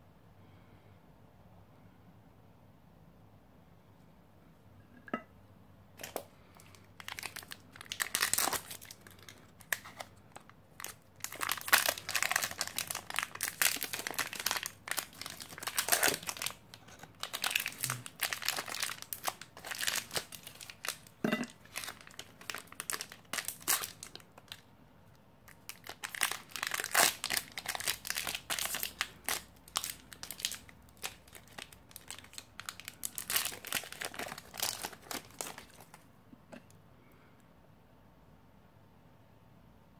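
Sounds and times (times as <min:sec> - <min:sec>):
crisp bars crunching: 0:06.0 - 0:24.2, 0:25.6 - 0:36.0
wrapper crinkling and tearing: 0:06.0 - 0:24.7, 0:25.5 - 0:36.0.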